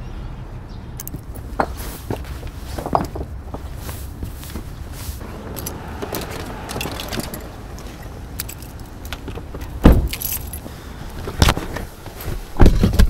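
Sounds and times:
small metal items jangling: 5.4s - 10.7s
heavy thump: 9.2s - 10.2s.

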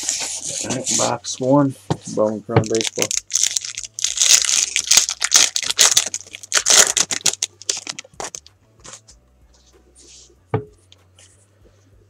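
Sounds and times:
foil wrapper tearing and crinkling: 2.6s - 8.4s.

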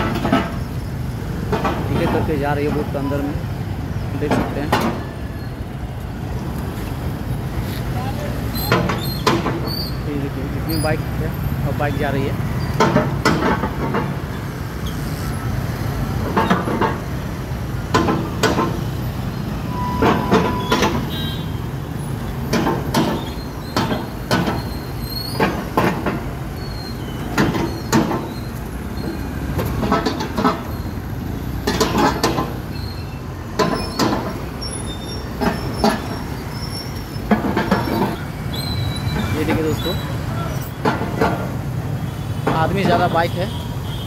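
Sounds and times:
motorcycles riding slowly: 0.0s - 44.0s
sharp knocks: 8.7s - 9.7s, 12.7s - 14.3s, 16.2s - 19.0s, 20.0s - 21.4s, 22.5s - 24.7s, 25.3s - 26.4s, 27.2s - 28.4s, 29.0s - 30.7s, 31.5s - 32.7s, 33.5s - 34.5s, 37.2s - 38.2s, 40.7s - 41.7s.

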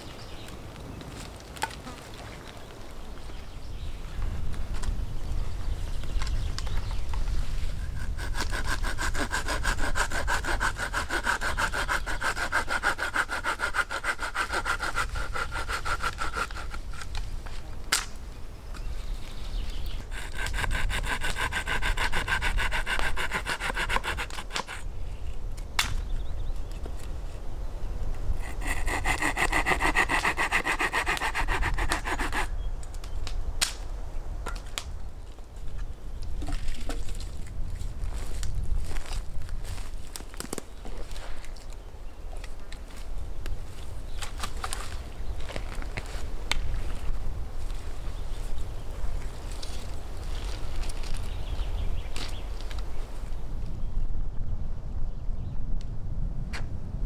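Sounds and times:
hand saw cutting wood: 7.8s - 17.1s, 20.0s - 24.9s, 28.4s - 32.5s.

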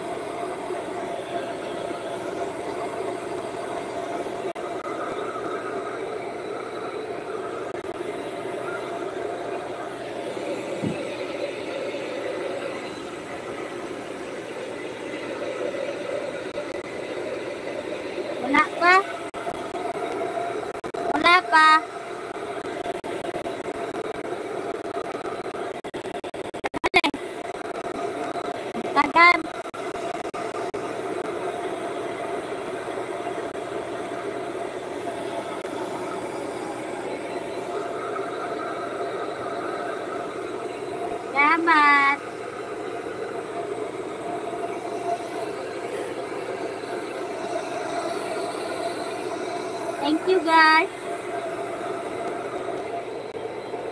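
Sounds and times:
hair dryer running: 5.6s - 25.0s, 34.5s - 53.9s
hair dryer blowing: 8.0s - 15.6s.

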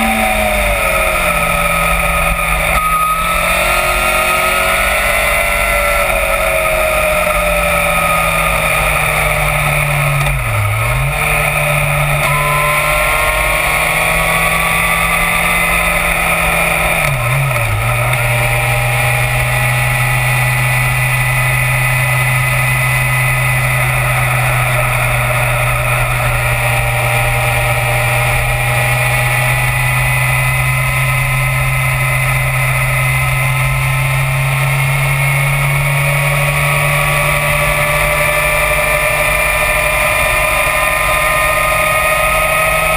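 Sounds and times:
motorcycle engine at speed: 0.0s - 42.9s.

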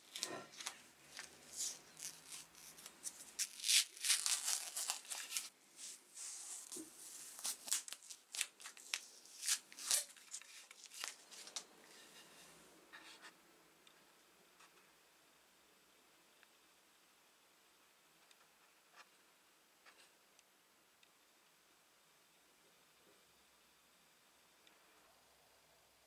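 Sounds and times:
plastic film crinkling and rustling: 0.0s - 11.7s
faint room hiss: 0.0s - 26.0s.

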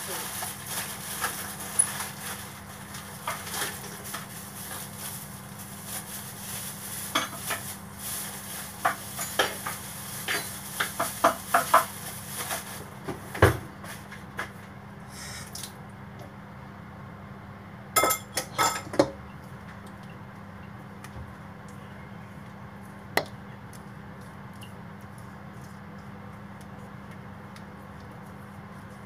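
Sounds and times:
dishes and utensils clinking: 8.8s - 11.9s, 18.0s - 19.2s.

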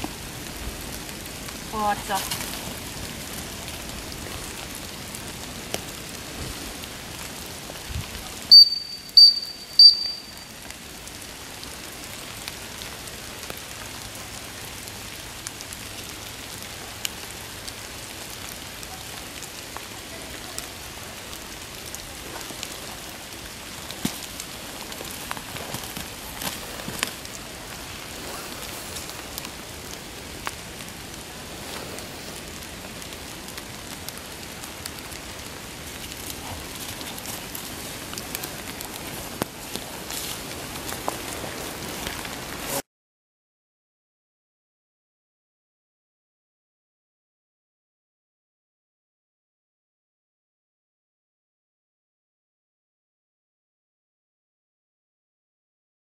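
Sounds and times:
light rain hiss: 0.0s - 42.8s
dog whistle blasts: 8.5s - 10.5s.

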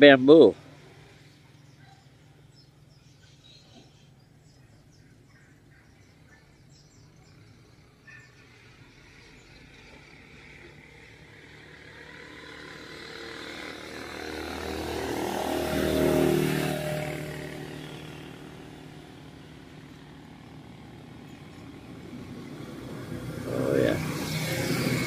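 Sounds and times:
vehicle engine driving past: 6.1s - 25.0s.

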